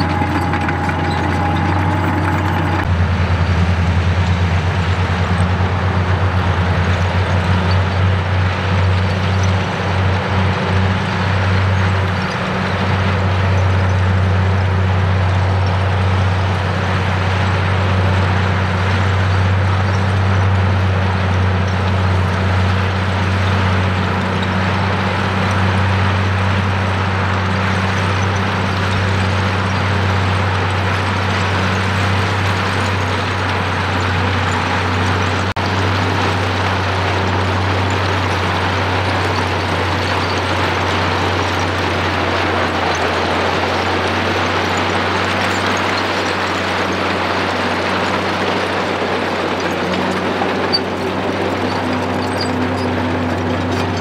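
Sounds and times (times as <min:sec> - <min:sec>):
rock grinding and scraping: 0:00.0 - 0:02.9
bulldozer diesel engine running: 0:00.0 - 0:54.0.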